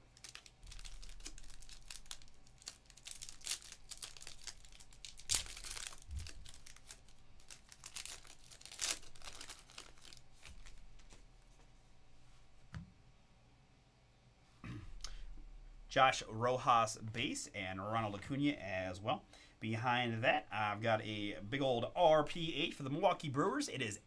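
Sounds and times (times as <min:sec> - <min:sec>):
foil wrapper crinkling and tearing: 0:00.0 - 0:11.2.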